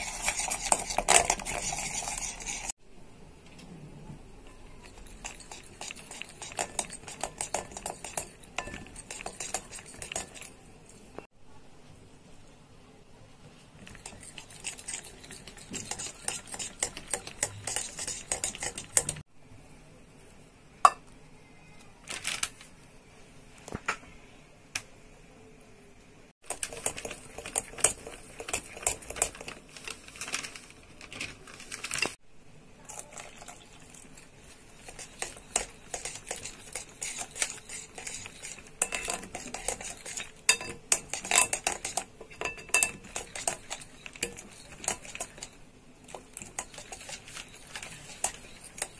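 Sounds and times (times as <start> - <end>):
whisk clicking against glass bowl: 4.8 - 10.5, 13.9 - 19.2, 34.8 - 48.9.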